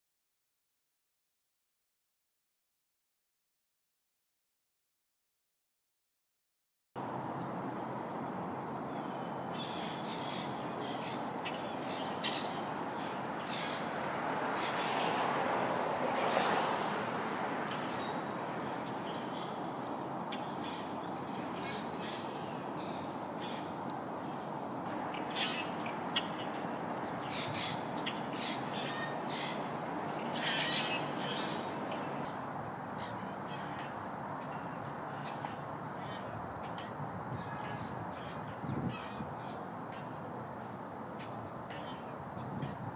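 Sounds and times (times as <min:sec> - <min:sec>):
birds calling: 0:07.0 - 0:32.4, 0:33.0 - 0:40.2, 0:41.1 - 0:42.9
steady background noise: 0:07.0 - 0:42.9
grackles calling harshly: 0:09.6 - 0:13.9, 0:25.1 - 0:32.2.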